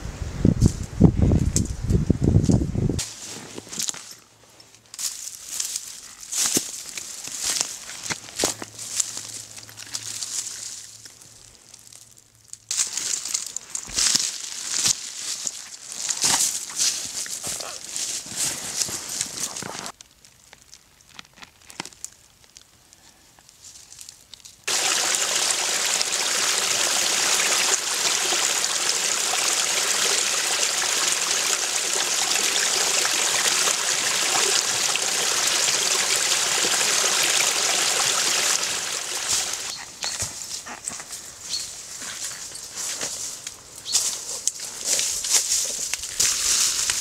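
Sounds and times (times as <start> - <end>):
footsteps in dry leaves: 3.0 - 20.0, 38.4 - 47.0
stream trickling over stones: 24.7 - 39.7.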